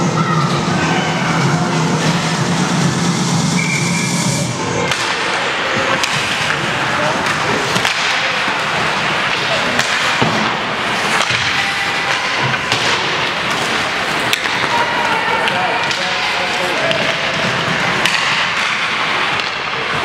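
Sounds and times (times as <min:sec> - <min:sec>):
steady hiss of arena noise: 0:00.0 - 0:20.0
sticks and puck clacking: 0:04.8 - 0:20.0
skates scraping over ice: 0:05.3 - 0:20.0.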